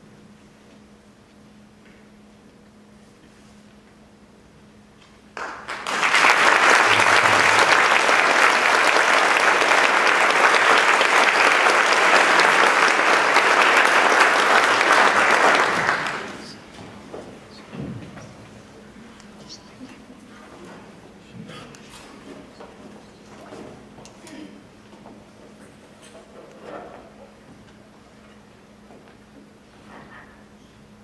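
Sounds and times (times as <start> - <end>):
audience applauding: 5.4 - 16.8.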